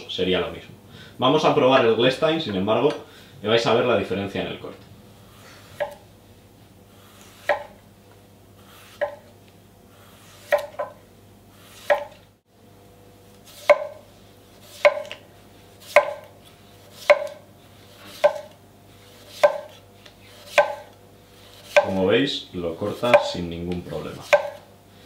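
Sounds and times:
knife slicing on wooden board: 7.2 - 7.8, 8.6 - 9.3, 10.1 - 11.0, 11.6 - 12.2, 13.4 - 14.0, 15.8 - 21.9.

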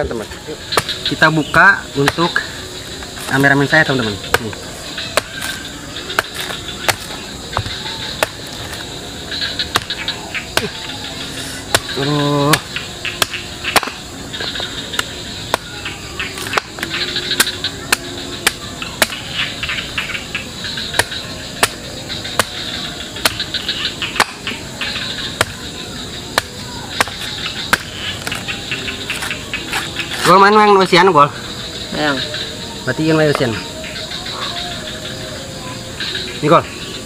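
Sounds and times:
high insect chorus: 0.0 - 37.0
machete chopping coconut husk: 0.7 - 1.4, 2.0 - 2.4, 4.3 - 8.9, 9.7 - 14.0, 14.9 - 15.8, 16.4 - 19.2, 20.9 - 21.8, 22.4 - 23.4, 24.2 - 24.5, 26.4 - 28.4.

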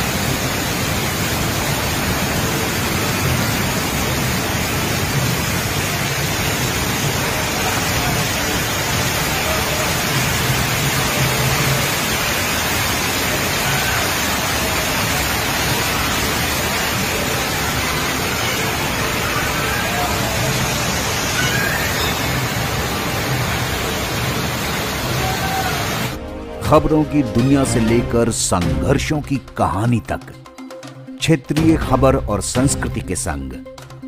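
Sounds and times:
rainwater rushing over steps: 0.0 - 26.2.

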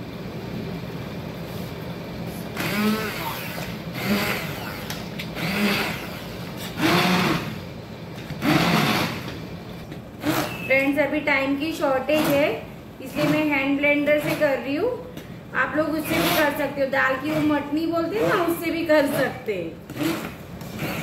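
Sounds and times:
hand blender motor: 2.6 - 7.6, 8.4 - 9.4, 10.2 - 10.6, 16.0 - 16.6, 17.2 - 21.0.

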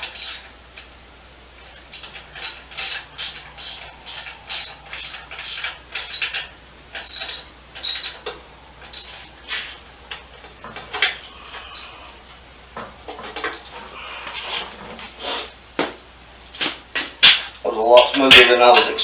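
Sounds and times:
metal tools clicking and clinking: 0.0 - 0.9, 1.6 - 12.1, 12.8 - 13.9.

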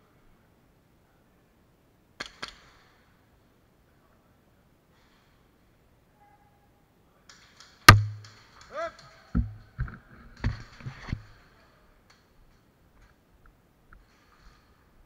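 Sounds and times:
dull thumps: 7.9 - 8.4, 9.4 - 11.2
loud sharp knock: 7.9 - 8.4
short cry: 8.7 - 9.2.

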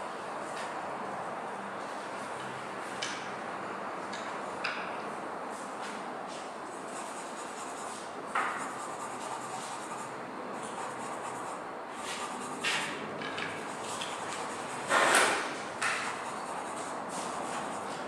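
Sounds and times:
charcoal rubbing on paper: 6.7 - 13.0, 13.6 - 18.0.

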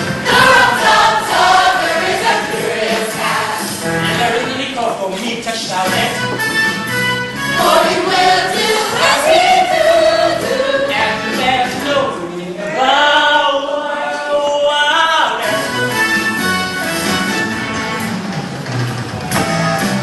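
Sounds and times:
voices singing together: 0.0 - 3.9, 7.5 - 15.5
band playing: 0.0 - 5.0, 5.6 - 12.0, 15.4 - 20.0.

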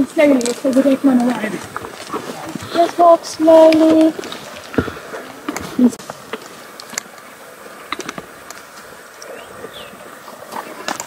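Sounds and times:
faint hiss: 0.0 - 11.0
hooves and tack clicking: 0.0 - 11.0
whistled glides: 9.2 - 11.0.

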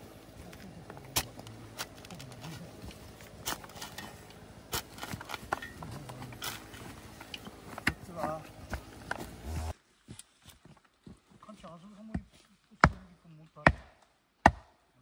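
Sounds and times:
shovel and hoe digging dirt: 0.0 - 10.3.

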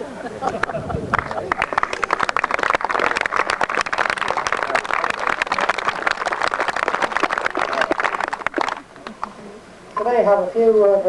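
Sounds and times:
crowd talking: 0.0 - 10.3.

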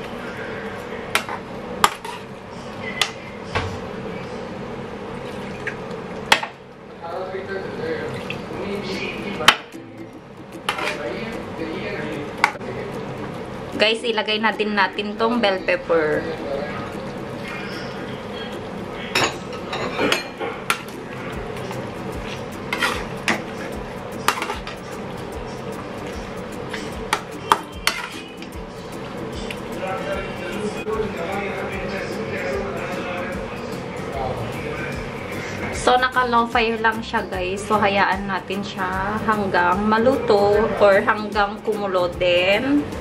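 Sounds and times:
metal ladle scraping metal pan: 22.7 - 23.3.

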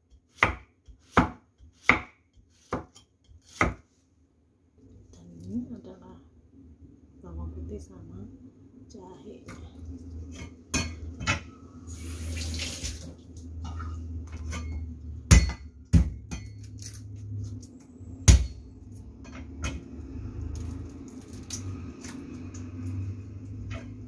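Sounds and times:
cleaver chopping on wooden block: 0.3 - 3.8.

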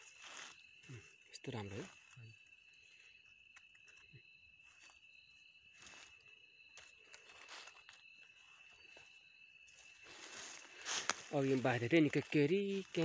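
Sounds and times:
dry leaves rustling: 0.0 - 0.6, 9.8 - 13.0
insect trill: 0.0 - 13.0.

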